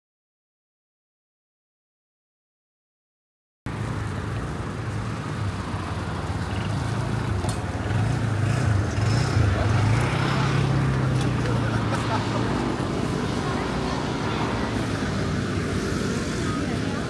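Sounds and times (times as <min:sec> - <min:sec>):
street noise: 0:03.7 - 0:17.0.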